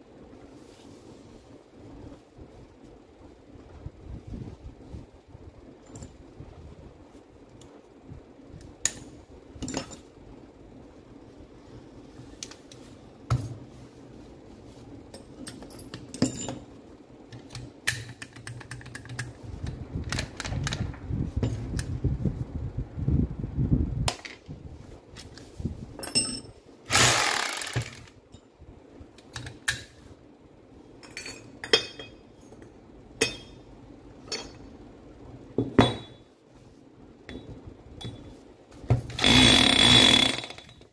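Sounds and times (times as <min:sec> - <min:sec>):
metal parts clicking and clinking: 0:08.8 - 0:10.1, 0:15.1 - 0:19.4, 0:26.0 - 0:28.5.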